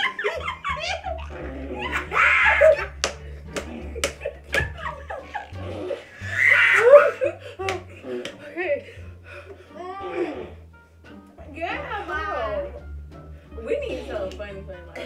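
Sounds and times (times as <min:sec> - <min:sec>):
women laughing and shrieking: 0:00.0 - 0:03.0, 0:04.2 - 0:07.7
sharp hand smacks: 0:03.0 - 0:04.7, 0:07.6 - 0:08.4.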